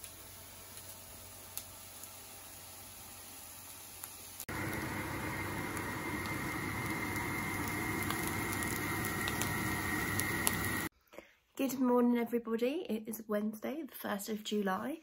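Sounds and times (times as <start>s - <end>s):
mince and onions sizzling: 0.0s - 10.9s.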